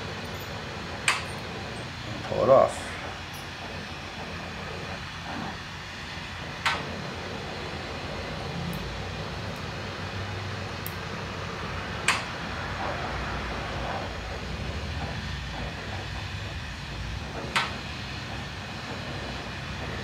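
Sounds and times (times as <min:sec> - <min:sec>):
torch burning with hiss: 0:00.0 - 0:20.0
sharp click: 0:12.0 - 0:12.3.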